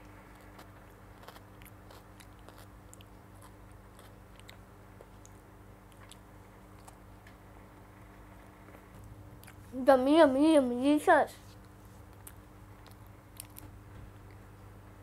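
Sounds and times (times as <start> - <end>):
child chewing bread: 0.0 - 7.2, 8.6 - 9.8, 11.4 - 14.6
steady low hum: 0.0 - 15.0.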